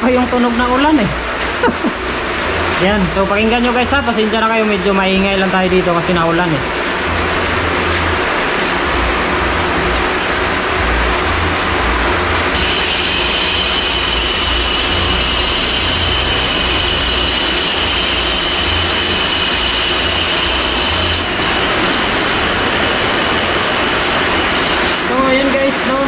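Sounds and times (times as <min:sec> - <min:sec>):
bicycle hub ticking buzz: 0:10.7 - 0:25.5
heavy rain hissing: 0:11.7 - 0:26.0.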